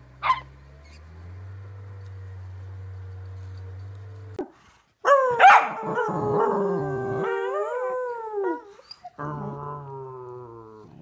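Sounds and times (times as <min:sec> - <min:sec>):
low steady hum: 0:05.0 - 0:11.0
dog howling: 0:05.1 - 0:10.8.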